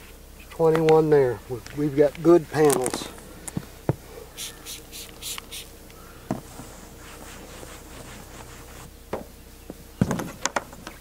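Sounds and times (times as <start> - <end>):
spray bottle squirting: 4.4 - 5.7
cloth rag rubbing a surface: 6.5 - 8.9.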